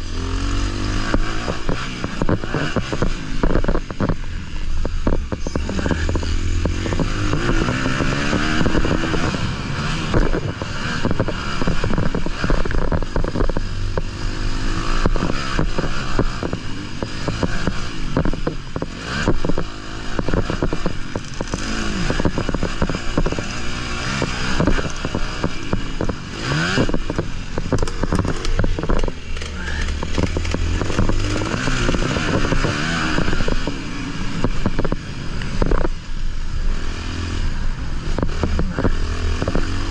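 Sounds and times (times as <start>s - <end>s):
motocross bike engine revving: 0.0s - 39.9s.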